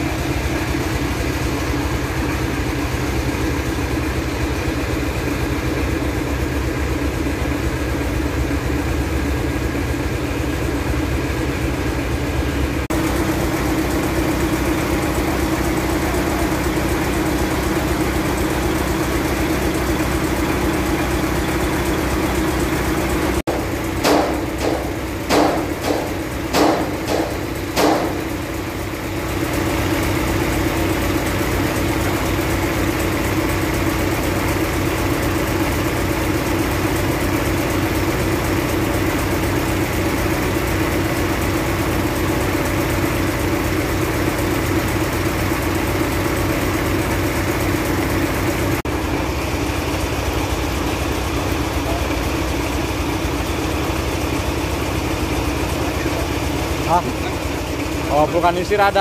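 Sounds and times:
diesel engine idling: 0.0s - 59.0s
sharp knocks: 23.5s - 28.3s.

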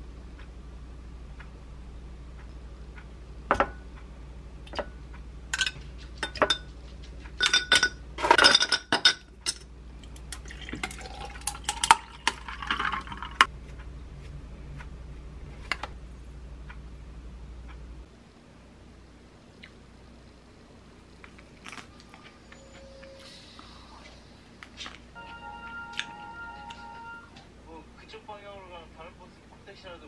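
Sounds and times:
glass and tableware clinking: 5.6s - 6.7s, 7.4s - 9.6s
drink poured into glass jar: 10.4s - 13.4s.

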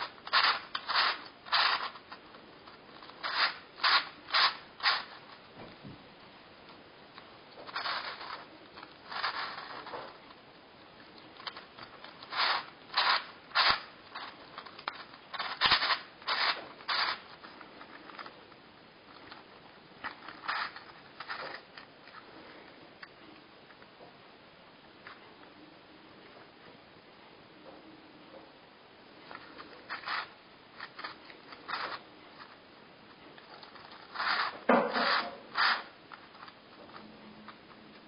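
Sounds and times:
plastic puzzle pieces clicking: 11.2s - 18.4s.

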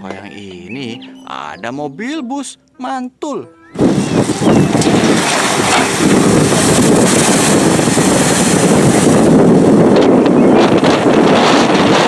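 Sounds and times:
wind buffeting microphone: 3.7s - 12.0s
vehicle ploughing through water: 4.0s - 9.8s.

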